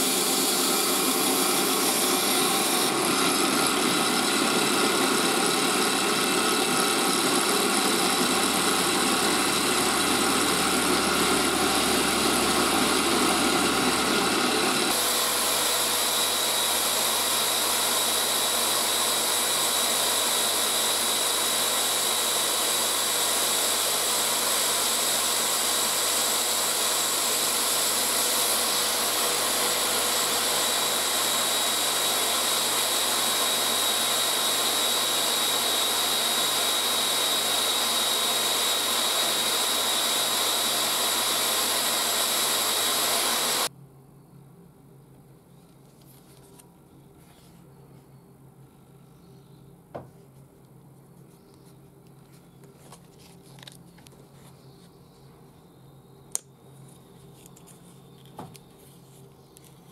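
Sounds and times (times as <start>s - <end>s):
knife polished on buffing wheel: 0.0s - 43.7s
power tool motor running: 0.0s - 43.7s.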